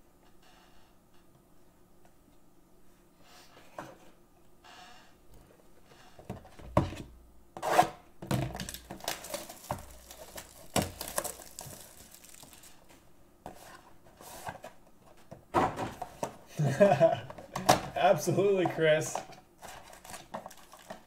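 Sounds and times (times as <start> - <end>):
plastic wrap crinkling: 8.6 - 13.0, 19.8 - 21.0.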